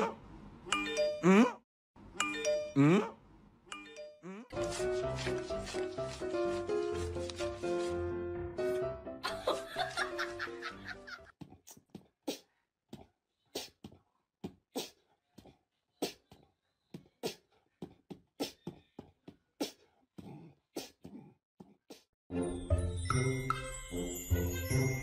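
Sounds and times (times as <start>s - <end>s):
music: 4.5s - 11.2s, 22.3s - 25.0s.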